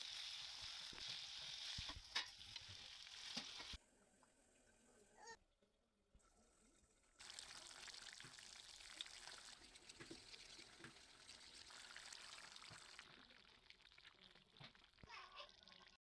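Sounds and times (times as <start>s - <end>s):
liquid pouring into wok: 7.2s - 15.6s.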